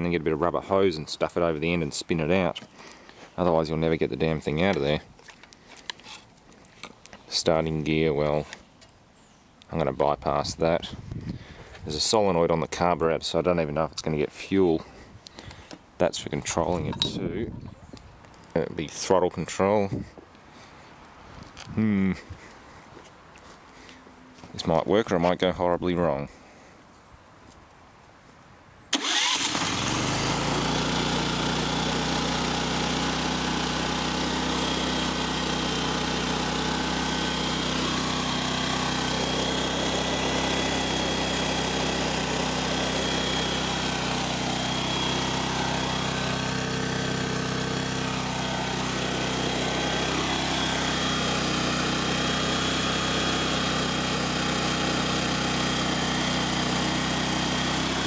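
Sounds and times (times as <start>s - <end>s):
generator engine starting and running: 28.9s - 58.0s.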